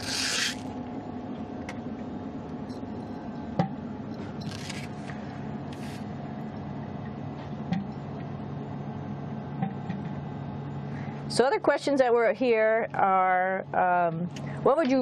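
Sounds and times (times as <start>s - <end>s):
ventilation fans humming: 0.0s - 15.0s
rustling or scraping: 4.4s - 6.1s.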